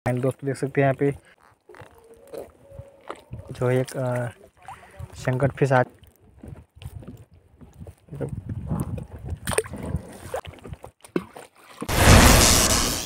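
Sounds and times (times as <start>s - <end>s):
water sloshing around boat: 1.2s - 6.5s, 9.1s - 11.9s
crackling electric zap effect: 11.9s - 13.0s.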